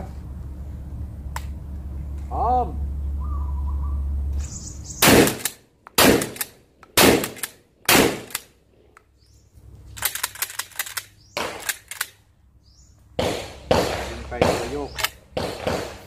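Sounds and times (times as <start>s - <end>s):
shotgun blasts: 5.0s - 8.4s, 13.2s - 16.0s.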